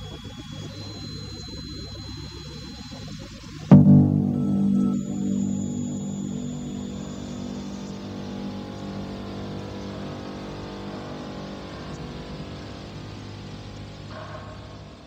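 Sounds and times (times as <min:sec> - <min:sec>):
electronic synthesizer drone: 0:00.0 - 0:15.0
low rumble: 0:03.7 - 0:09.4.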